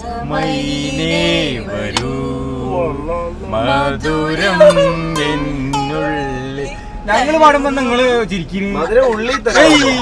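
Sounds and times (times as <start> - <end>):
people singing together: 0.0 - 6.8.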